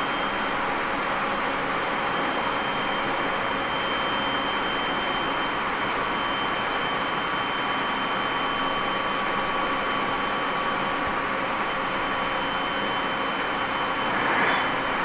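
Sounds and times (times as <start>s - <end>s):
high electric whine: 12.0s - 15.0s.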